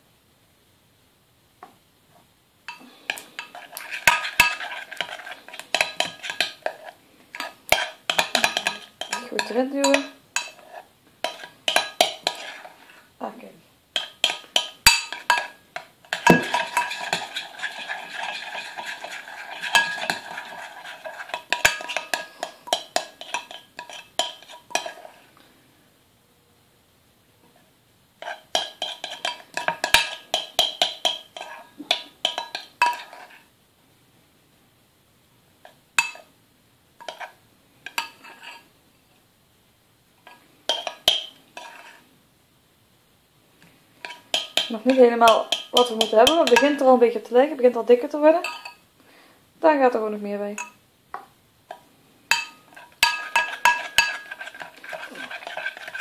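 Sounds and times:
spoon scraping: 0:02.7 - 0:13.1, 0:14.0 - 0:25.4, 0:28.2 - 0:33.5, 0:37.0 - 0:38.7, 0:40.2 - 0:42.1, 0:44.0 - 0:48.8, 0:51.7 - 0:56.0
slime being stirred: 0:03.1 - 0:13.1, 0:14.0 - 0:25.3, 0:28.2 - 0:33.5, 0:40.3 - 0:42.0, 0:44.0 - 0:47.0, 0:52.3 - 0:56.0
metal spoon clinking on glass: 0:07.7 - 0:10.6, 0:11.2 - 0:12.4, 0:14.0 - 0:17.4, 0:28.5 - 0:33.1, 0:40.7 - 0:41.3, 0:44.0 - 0:46.9, 0:48.4 - 0:48.8, 0:50.6 - 0:50.8, 0:52.3 - 0:56.0
spoon clinking against glass: 0:44.1 - 0:46.8, 0:48.4 - 0:48.8, 0:50.6 - 0:50.8, 0:52.3 - 0:54.4.

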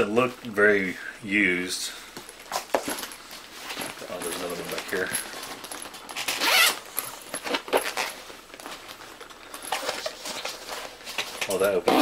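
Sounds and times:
bag zipper being pulled open: 0:06.1 - 0:08.2.

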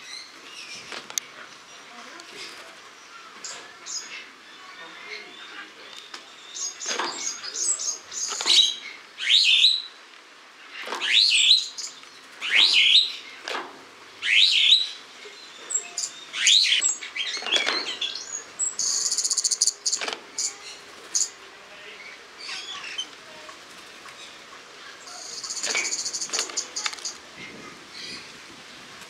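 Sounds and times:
buzzy rattling bird trill: 0:15.7 - 0:21.4, 0:25.1 - 0:27.2.

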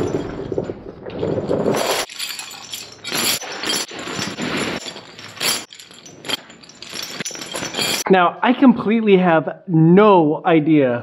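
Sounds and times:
chains scraping on concrete: 0:00.0 - 0:08.0
metal chain clinks and clanks: 0:00.0 - 0:08.0.

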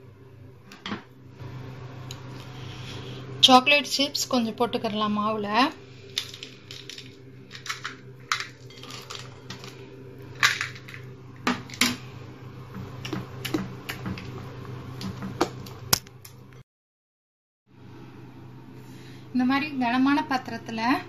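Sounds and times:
low steady hum: 0:00.0 - 0:16.6.

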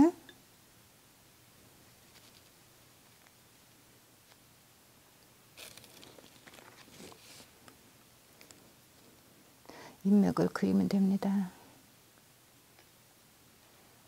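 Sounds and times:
soft rustling of sleeve: 0:01.8 - 0:03.4, 0:05.6 - 0:07.6.

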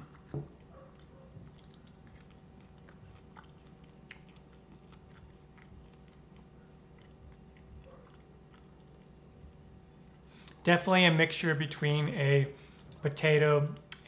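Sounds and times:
person chewing quietly: 0:00.0 - 0:10.6.

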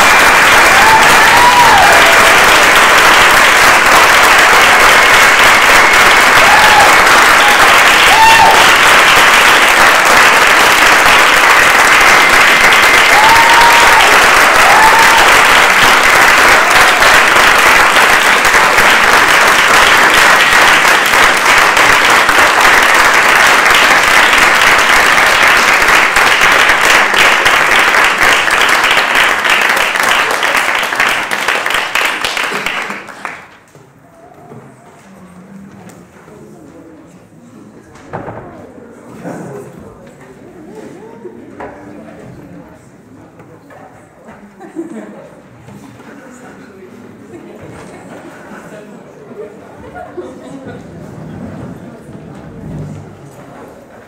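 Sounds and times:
audience applauding: 0:00.0 - 0:33.7.

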